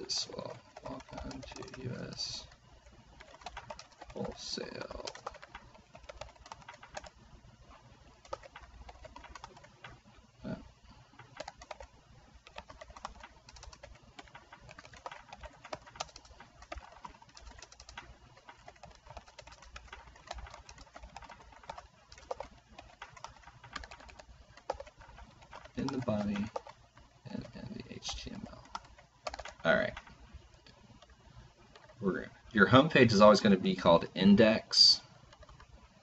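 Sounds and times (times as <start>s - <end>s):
keyboard typing: 0.0s - 32.1s, 34.8s - 36.0s.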